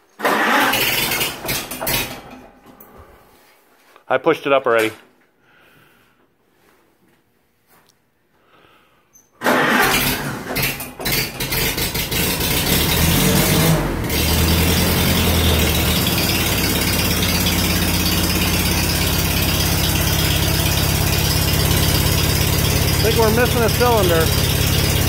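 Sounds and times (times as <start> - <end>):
tractor engine running rough: 0.2 - 2.6, 9.5 - 25.0.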